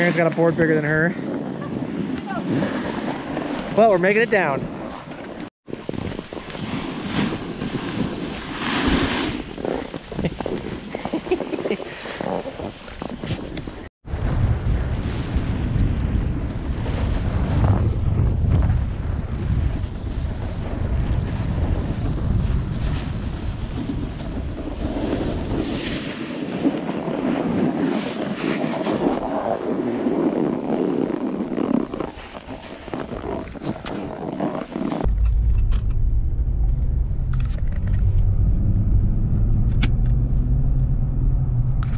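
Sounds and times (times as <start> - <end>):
snowboard scraping over snow: 0.0 - 35.1
wind on microphone: 0.0 - 41.9
car road hum: 35.1 - 41.9.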